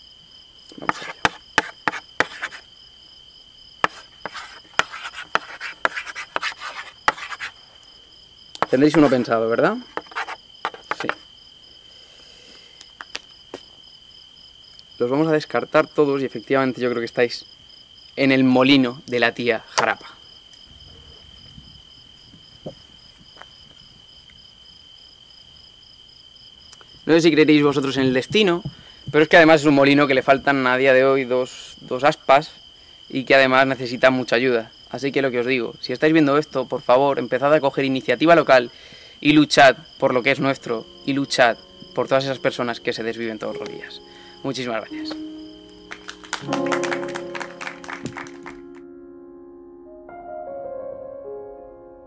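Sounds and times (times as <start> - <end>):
crickets chirping: 0.0 - 48.7
chalk tapping on a hard surface: 0.8 - 2.6, 3.8 - 7.5, 8.6 - 9.2, 9.9 - 11.2.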